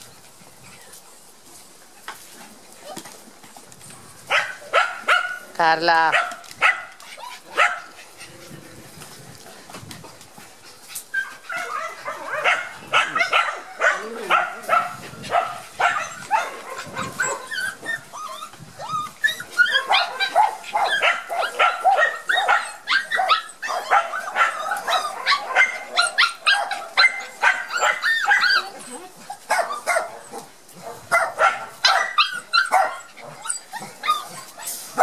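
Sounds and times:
puppies yelping and whining: 0:06.9 - 0:08.8, 0:10.8 - 0:35.0.

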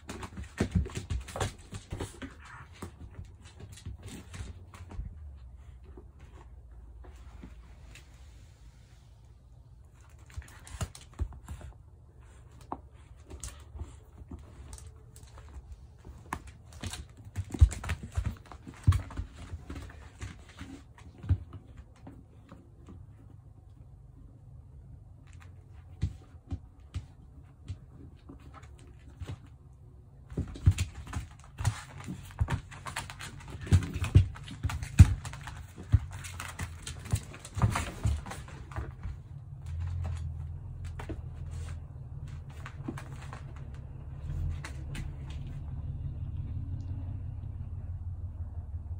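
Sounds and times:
boot and paws knocking on floor: 0:30.2 - 0:45.6.

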